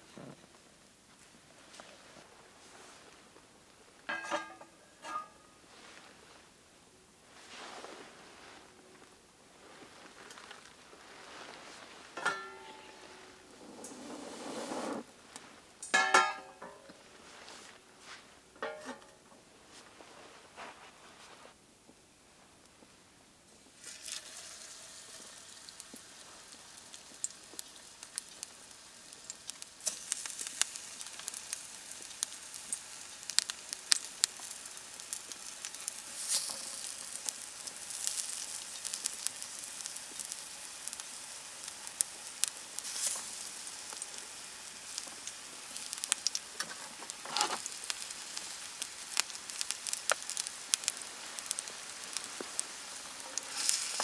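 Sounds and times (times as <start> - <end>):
oil sizzling in a frying pan: 4.1 - 5.4, 12.1 - 17.4, 23.6 - 54.0.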